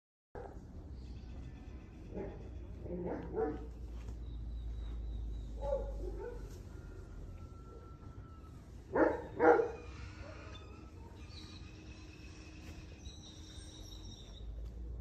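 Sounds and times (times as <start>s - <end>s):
dog barking: 2.1s - 3.7s, 5.6s - 6.6s, 8.9s - 10.5s.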